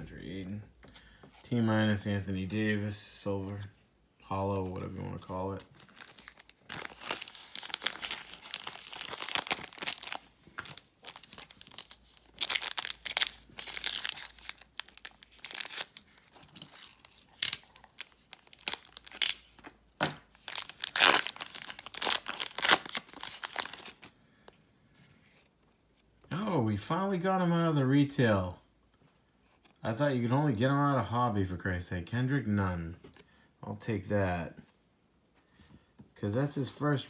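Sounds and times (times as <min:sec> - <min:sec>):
foil wrapper crinkling and tearing: 0:05.8 - 0:24.1.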